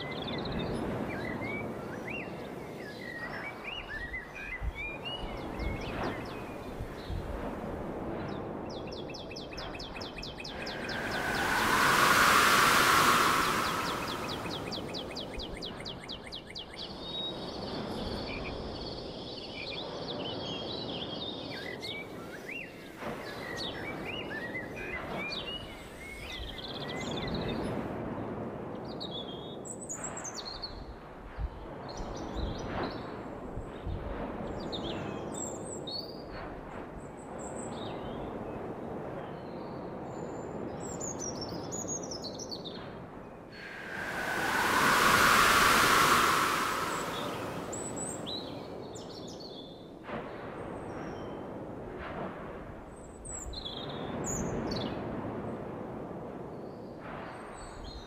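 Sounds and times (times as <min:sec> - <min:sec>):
steady rushing noise: 0:10.4 - 0:15.4, 0:43.6 - 0:48.6.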